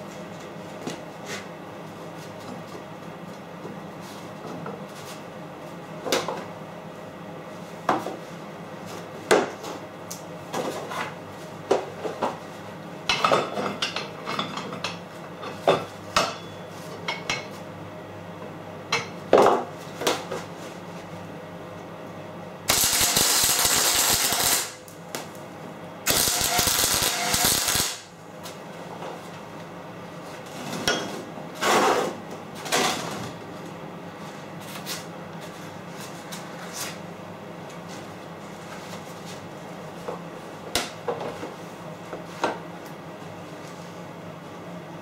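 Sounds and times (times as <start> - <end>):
welder arc crackling: 22.7 - 25.0, 26.0 - 28.1.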